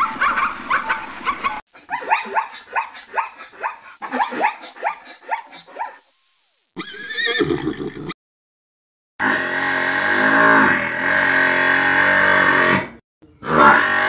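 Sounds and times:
zebras yelping barks: 0:01.7 - 0:06.1.

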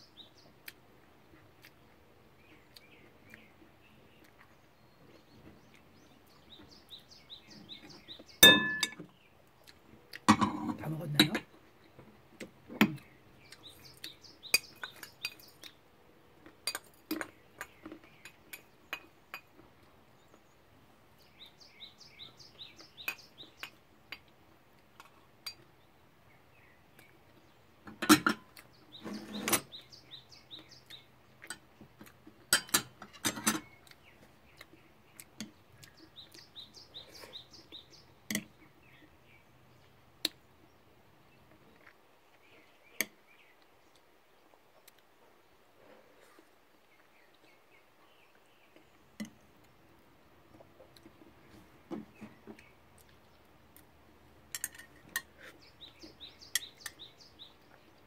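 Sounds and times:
bird chirping: 0:00.0 - 0:58.0
utensils clinking on bowls: 0:08.4 - 0:09.1.

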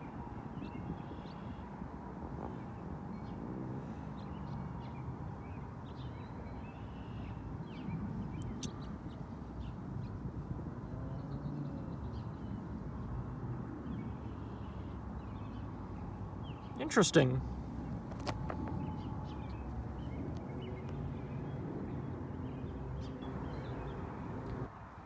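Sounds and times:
bird chirps: 0:06.0 - 0:08.9.

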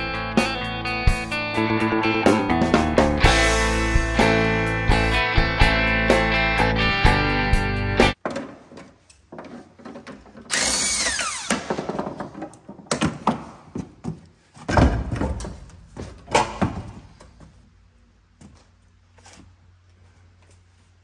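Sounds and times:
power tool whirring: 0:10.5 - 0:12.0.

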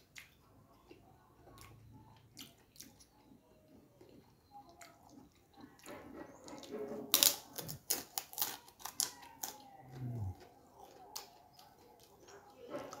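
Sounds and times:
cracker crunching: 0:06.6 - 0:13.0.

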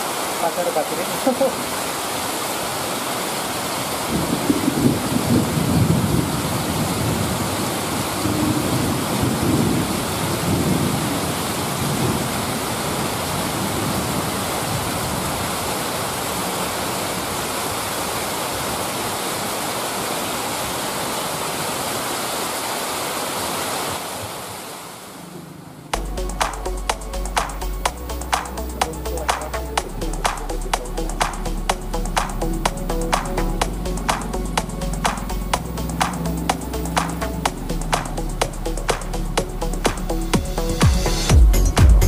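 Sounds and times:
heavy rain falling: 0:00.0 - 0:42.0
wind gusts rumbling: 0:03.5 - 0:18.8.

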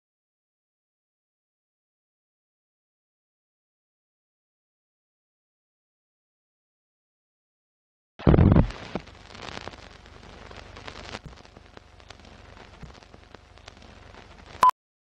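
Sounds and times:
steady hiss: 0:08.2 - 0:14.6
film crackle clicks and pops: 0:08.2 - 0:14.7.

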